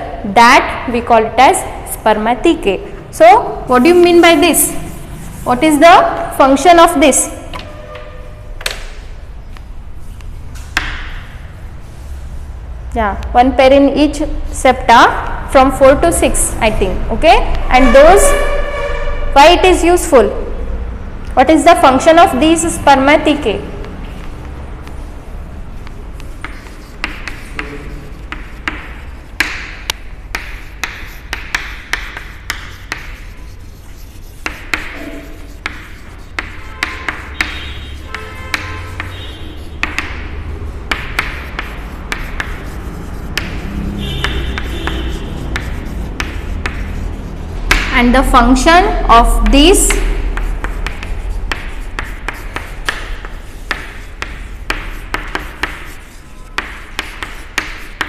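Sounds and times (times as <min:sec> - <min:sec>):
chalk scratching on blackboard: 0:03.4 - 0:08.2, 0:21.8 - 0:58.0
chalk tapping on blackboard: 0:08.6 - 0:11.5, 0:22.1 - 0:58.0.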